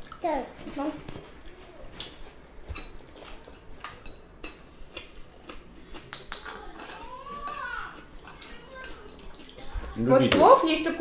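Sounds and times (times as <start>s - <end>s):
cutlery clinking on plates: 2.7s - 3.3s, 5.9s - 9.5s.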